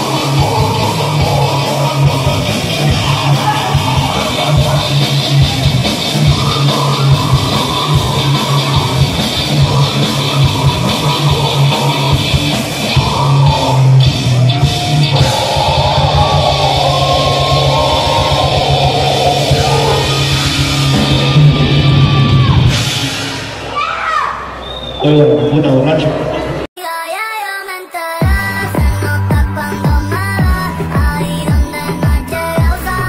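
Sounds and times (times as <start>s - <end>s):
rapid dense drumming: 0.0s - 23.6s
bass guitar: 0.0s - 23.7s, 28.2s - 33.0s
distorted electric guitar: 0.0s - 23.7s.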